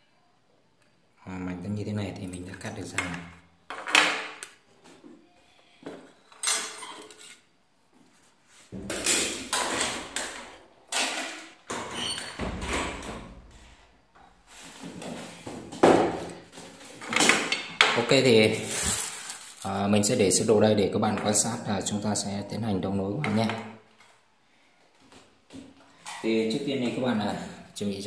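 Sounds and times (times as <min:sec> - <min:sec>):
scraping and rustling: 0:18.4 - 0:19.7.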